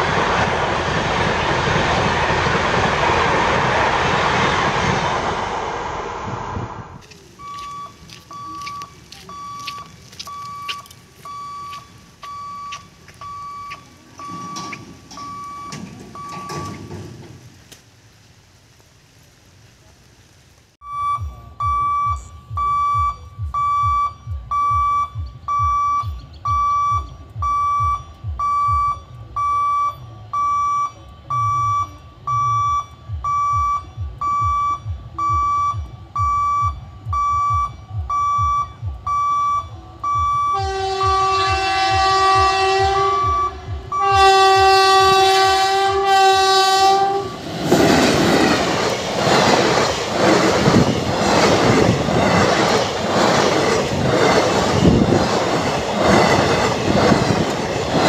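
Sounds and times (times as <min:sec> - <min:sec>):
train rumbling and rushing past: 0:00.0 - 0:17.8, 0:21.1 - 0:58.0
level crossing bell beeping: 0:07.4 - 0:16.8
train horn blasts: 0:39.6 - 0:47.5.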